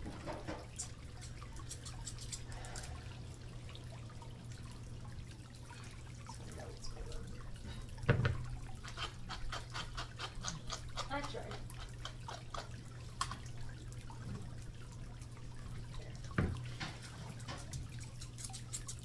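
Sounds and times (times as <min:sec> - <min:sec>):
steady low hum: 0:00.0 - 0:19.0
scissors snipping hair: 0:18.0 - 0:19.0.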